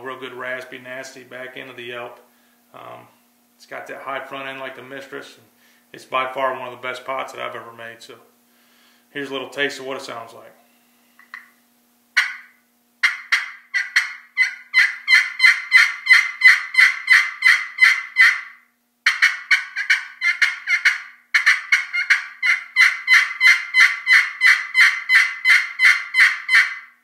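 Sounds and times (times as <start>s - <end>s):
turkey call yelps: 12.2s - 27.0s.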